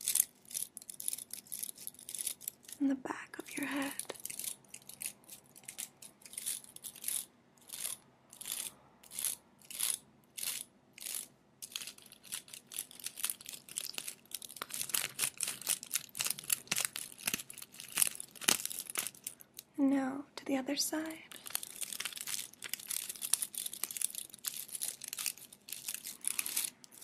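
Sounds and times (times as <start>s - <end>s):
fingertips scratching and rubbing: 4.0s - 19.4s, 21.3s - 27.0s.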